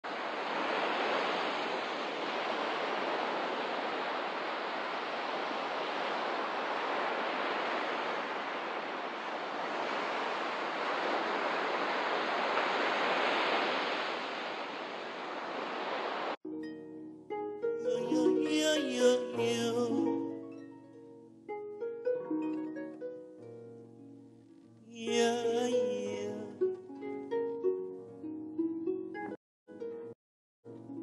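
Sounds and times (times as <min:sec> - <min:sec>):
sea waves on shore: 0:00.0 - 0:16.4, 0:17.9 - 0:20.5.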